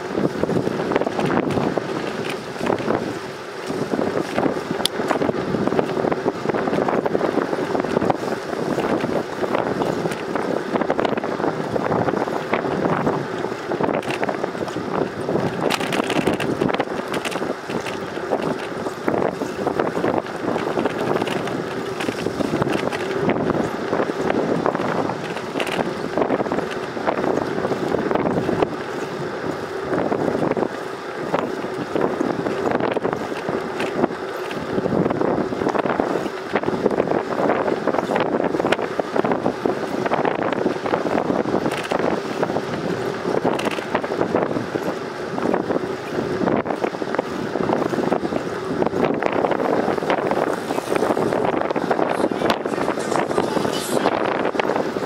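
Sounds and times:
wind buffeting microphone: 0.0s - 55.0s
small knocks and rattles: 13.4s - 23.2s, 24.2s - 26.0s, 41.6s - 44.1s.

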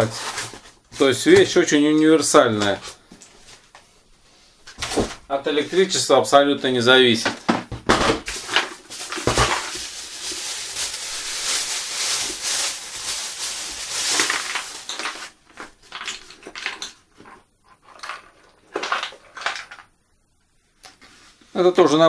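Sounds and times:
plastic packaging crinkling: 8.0s - 19.9s.

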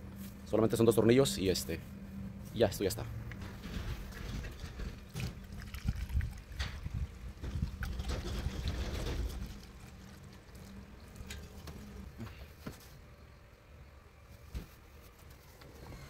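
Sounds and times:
liquid pouring through a funnel: 5.0s - 11.2s.

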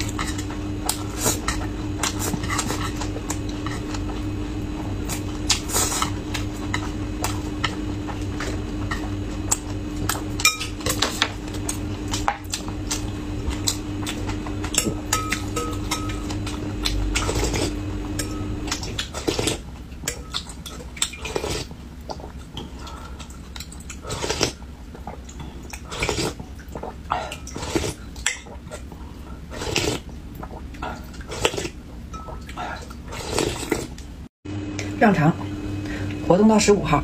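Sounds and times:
slurping soup: 0.0s - 9.9s, 18.6s - 19.7s, 20.7s - 31.8s, 32.4s - 34.0s
chewing: 10.9s - 34.1s.

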